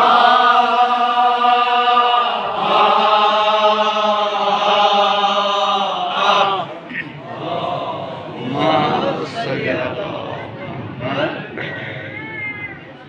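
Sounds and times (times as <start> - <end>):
man chanting elegy: 8.4 - 11.5.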